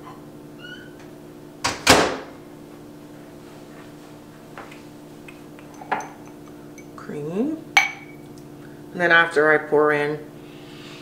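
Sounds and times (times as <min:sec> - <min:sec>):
low electrical hum: 0:00.0 - 0:11.0
glass cup clink: 0:05.6 - 0:06.9, 0:07.8 - 0:08.3.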